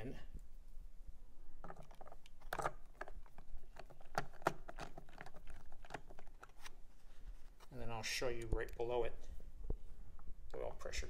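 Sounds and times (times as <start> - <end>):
plastic and metal parts clicking: 1.6 - 6.8.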